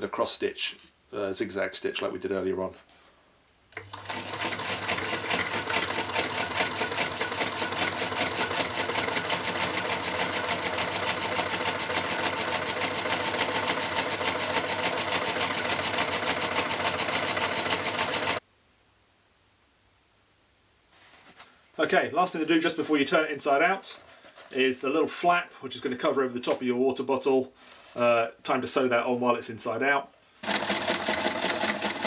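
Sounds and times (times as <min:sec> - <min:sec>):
sewing machine stitching: 0:03.8 - 0:18.4, 0:30.4 - 0:32.0.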